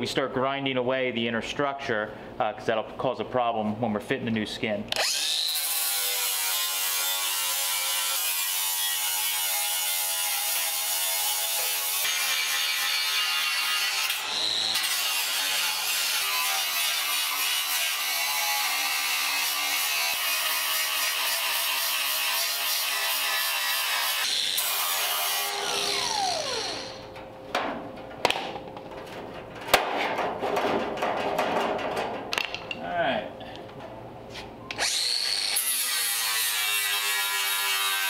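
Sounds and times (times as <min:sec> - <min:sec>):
angle grinder grinding steel: 0:05.0 - 0:27.0, 0:34.7 - 0:38.0
grinder spinning down whine: 0:25.5 - 0:27.0.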